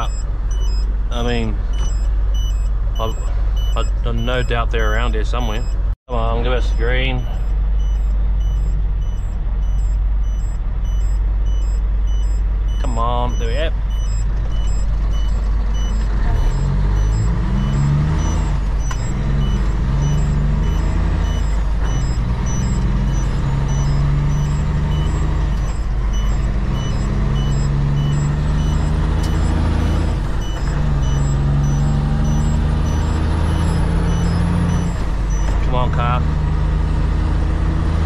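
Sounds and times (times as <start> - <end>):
rapid high beeping: 0.0 - 36.2
truck diesel engine: 0.0 - 38.0.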